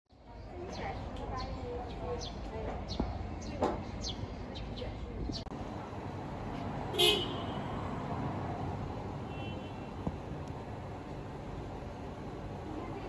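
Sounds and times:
steady background noise: 0.1s - 13.0s
vehicle horn toot: 7.0s - 7.7s, 9.3s - 10.0s.

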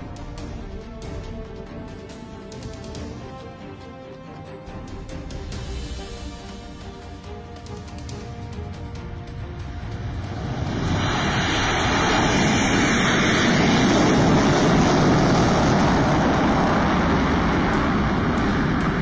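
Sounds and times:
jet engines roaring: 4.7s - 19.0s.

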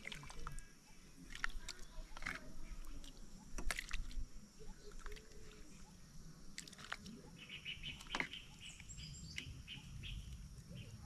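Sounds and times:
birds chirping: 4.4s - 11.0s.

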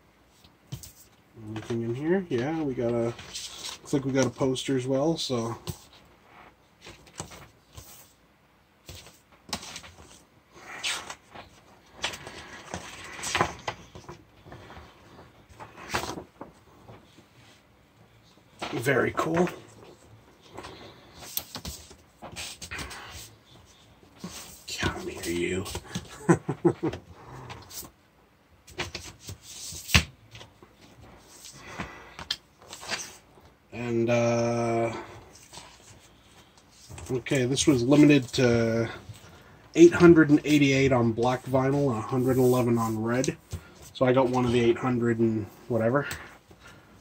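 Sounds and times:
record sleeves rustling: 0.2s - 8.2s, 8.8s - 28.0s, 28.6s - 47.0s
paper and cardboard rustling: 10.8s - 17.6s, 28.7s - 33.9s, 34.8s - 44.8s.

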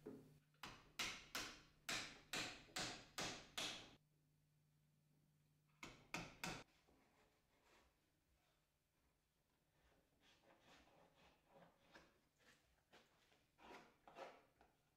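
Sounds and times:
hammer striking nail into wood: 0.6s - 4.0s.

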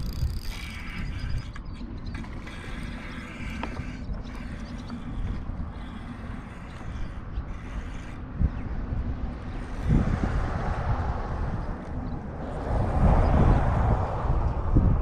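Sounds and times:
fishing reel whirring: 0.0s - 8.8s
wind rumbling on microphone: 0.0s - 15.0s.

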